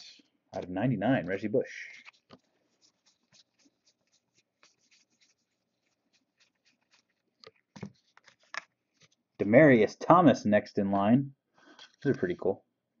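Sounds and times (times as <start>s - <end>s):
trading cards rustling: 0.6s - 9.2s.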